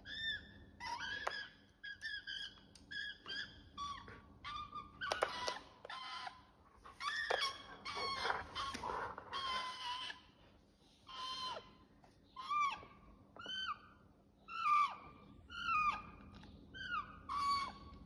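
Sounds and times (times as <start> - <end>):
magpie warbling calls: 11.0 - 11.8, 12.4 - 16.2, 16.8 - 18.0.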